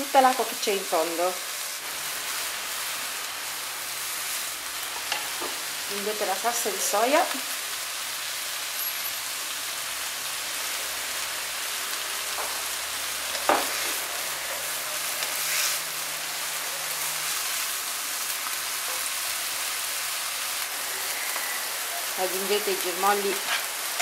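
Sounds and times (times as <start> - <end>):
vegetables sizzling in oil: 0.0 - 24.0.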